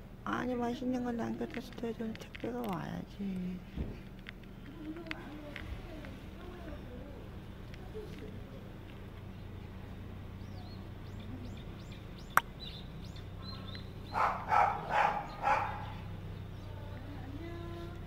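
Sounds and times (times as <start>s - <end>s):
small birds chirping: 0.0s - 18.0s
steady low hum: 0.0s - 18.0s
dog barking: 13.4s - 16.1s.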